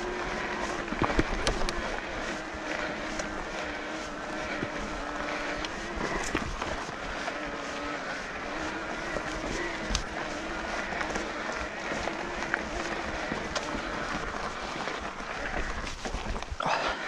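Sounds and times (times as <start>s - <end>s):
electric bike motor whining: 0.0s - 17.0s
tyres crunching on stony trail: 0.0s - 17.0s.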